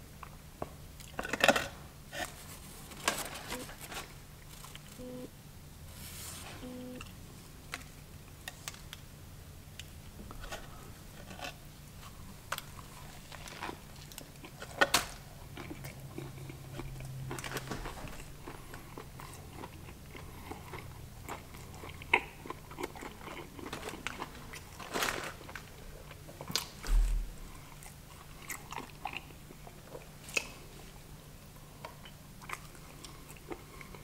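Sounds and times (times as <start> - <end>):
biting and chewing crunchy food: 9.8 - 26.8, 27.5 - 30.7.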